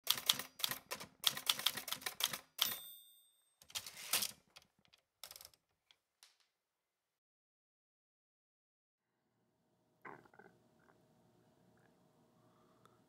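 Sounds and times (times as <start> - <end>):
typewriter keys clacking: 0.0 - 2.8, 3.6 - 5.6
typewriter bell ringing: 2.6 - 3.9
typewriter carriage sliding: 3.7 - 4.4.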